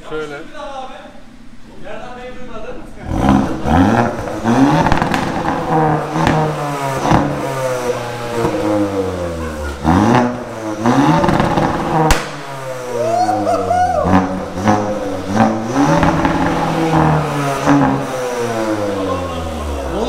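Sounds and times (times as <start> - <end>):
exhaust cracks: 2.8 - 20.0
car engine revving through gears: 3.0 - 13.0, 14.0 - 20.0.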